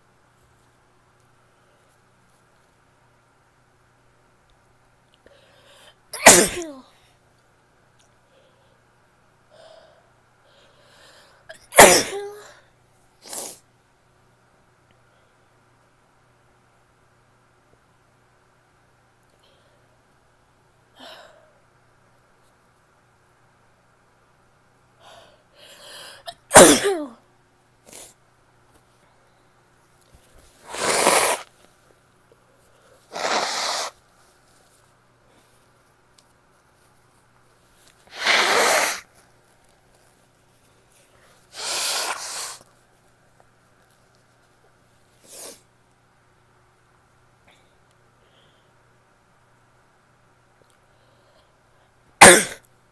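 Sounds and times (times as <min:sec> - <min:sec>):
woman sneezing: 0:06.2 - 0:06.9, 0:11.5 - 0:12.6, 0:26.3 - 0:27.2, 0:30.6 - 0:31.4, 0:33.1 - 0:33.9, 0:38.1 - 0:39.1, 0:41.5 - 0:42.6, 0:52.2 - 0:52.6.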